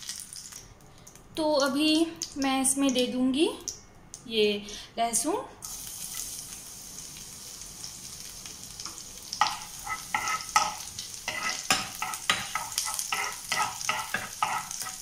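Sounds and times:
garlic sizzling in hot oil: 0.0s - 0.6s, 5.6s - 15.0s
metal spoon scraping a pan: 9.4s - 15.0s.

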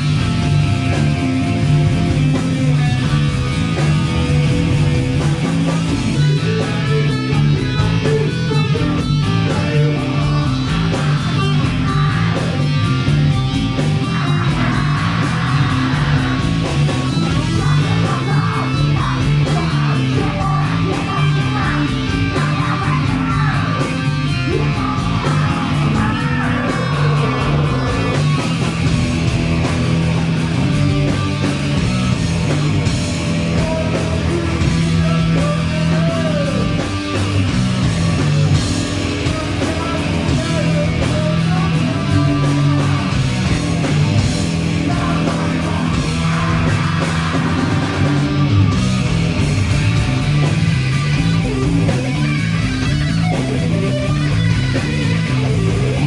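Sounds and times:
loud rock music: 0.0s - 56.0s.

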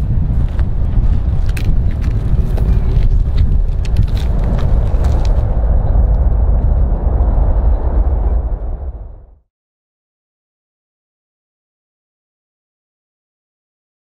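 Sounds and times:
distant jet engines rumbling: 0.0s - 9.4s
wind crackling on microphone: 0.0s - 9.4s.

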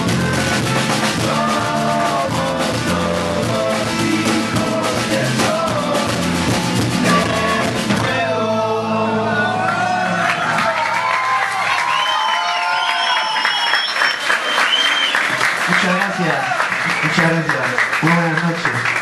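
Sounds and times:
drum kit beat: 0.0s - 8.6s
live band music: 0.0s - 10.6s.

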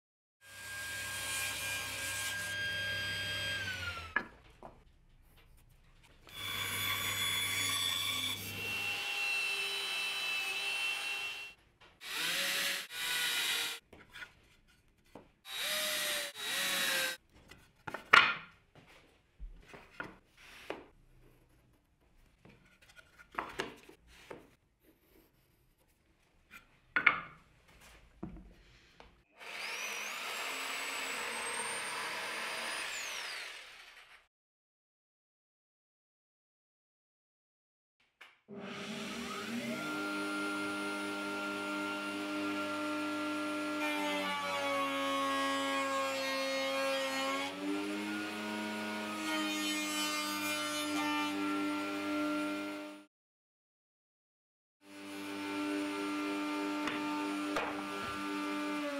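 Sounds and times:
jigsaw cutting wood: 0.5s - 4.3s, 6.3s - 13.8s, 15.5s - 17.2s, 29.3s - 34.3s, 38.5s - 53.1s, 54.8s - 58.9s
table saw running: 0.5s - 4.3s, 6.3s - 13.8s, 29.4s - 34.2s, 38.5s - 49.2s
power tool running: 6.3s - 13.8s, 29.4s - 34.2s, 38.5s - 43.7s
drill driving screws: 12.0s - 13.8s.

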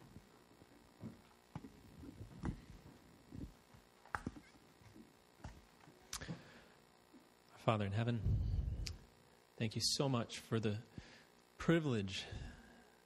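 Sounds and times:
faint footsteps and shuffling: 0.0s - 6.5s.

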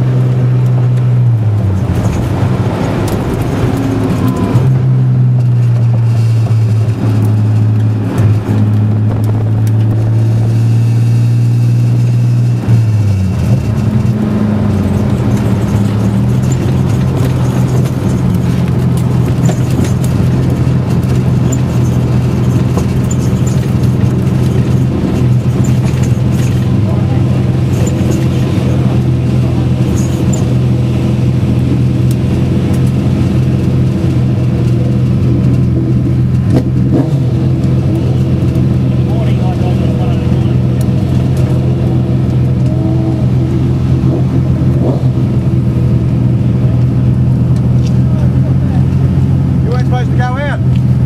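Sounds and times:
car engine running: 0.0s - 51.0s.

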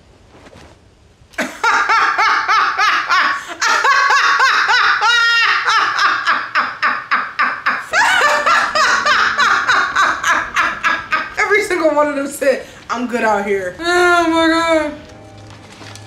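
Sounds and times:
woman laughing loudly: 1.4s - 11.6s.

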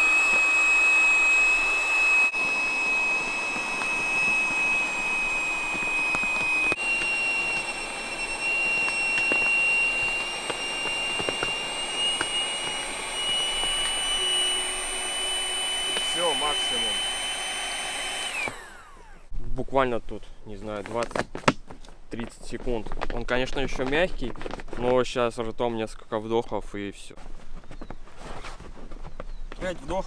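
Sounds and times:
electric air pump whining: 0.0s - 19.4s.

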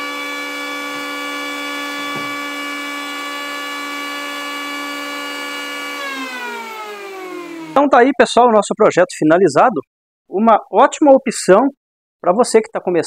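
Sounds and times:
electric planer whining: 0.0s - 7.8s.

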